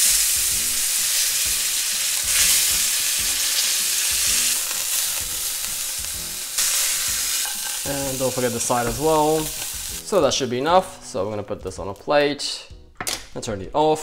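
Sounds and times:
meat sizzling in a frying pan: 0:00.0 - 0:10.3.

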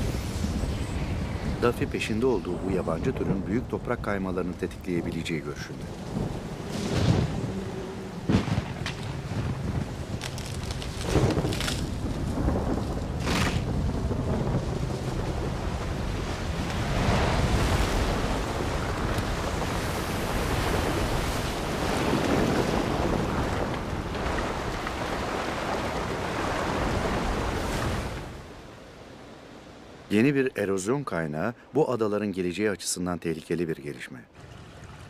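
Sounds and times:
rushing water: 0:00.0 - 0:30.9
heavy rain downpour: 0:05.1 - 0:28.4
sharp cracks: 0:10.1 - 0:12.0, 0:13.2 - 0:13.8.

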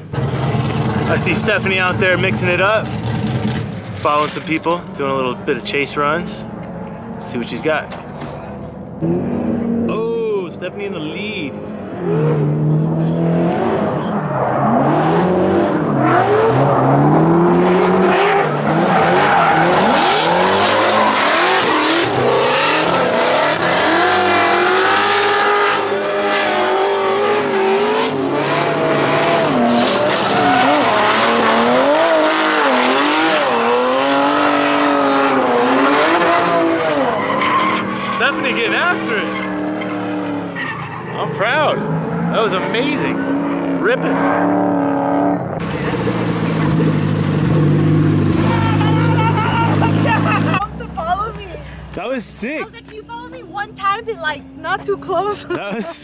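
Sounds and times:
car engines revving: 0:00.0 - 0:56.0
tyres screeching: 0:29.5 - 0:43.4.

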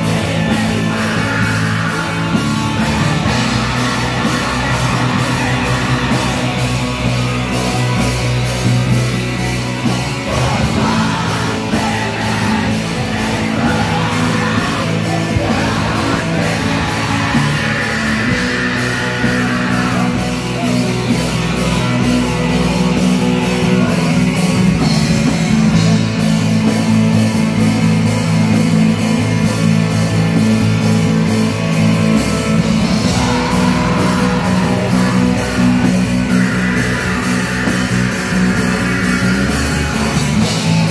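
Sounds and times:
person singing: 0:00.0 - 0:08.0, 0:09.8 - 0:24.3, 0:32.6 - 0:40.1
bass guitar: 0:00.0 - 0:40.9
distorted electric guitars: 0:00.0 - 0:40.9
drum kit with cymbals: 0:00.0 - 0:40.9.

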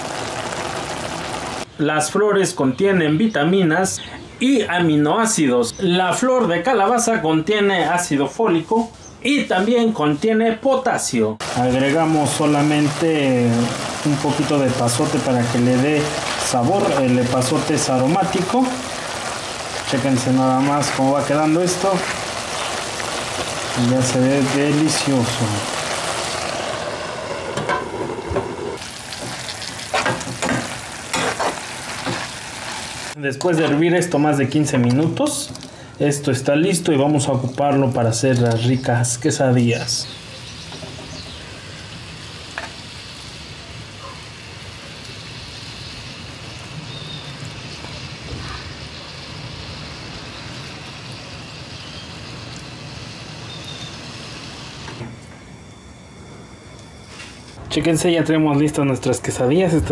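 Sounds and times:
vegetables sizzling in a pan: 0:00.0 - 0:01.7, 0:11.4 - 0:33.2, 0:40.0 - 0:55.0
metal spoon scraping a pan: 0:29.9 - 0:32.2.

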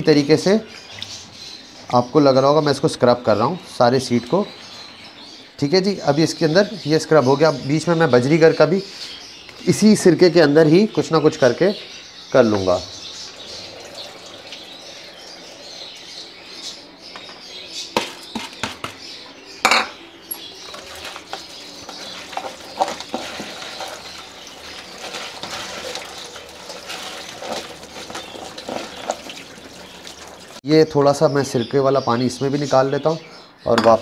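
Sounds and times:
bowls clinking and knocking: 0:19.6 - 0:30.6
wet rustle of stirred seeds: 0:20.4 - 0:30.6.

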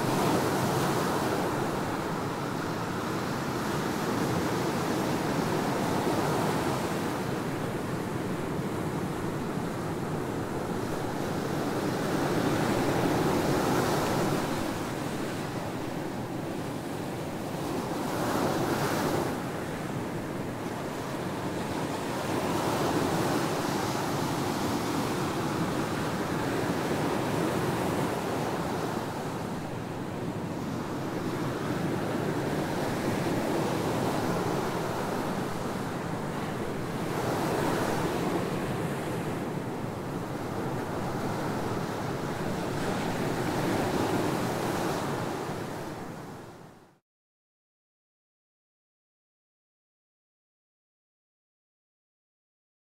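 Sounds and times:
ocean surf breaking on beach: 0:00.0 - 0:46.6.

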